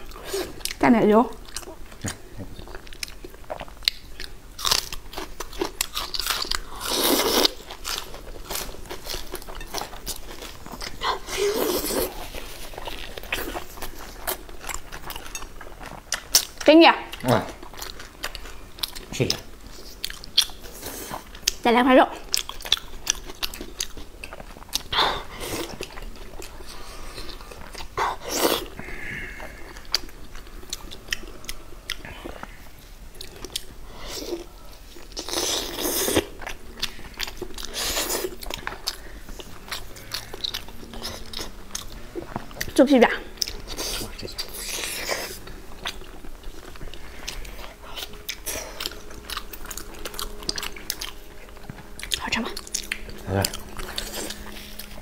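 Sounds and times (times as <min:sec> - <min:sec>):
chewing with sticky clicks: 0:00.0 - 0:06.7, 0:12.7 - 0:25.0, 0:34.9 - 0:55.0
crisp vegetable crunch: 0:01.5 - 0:21.6.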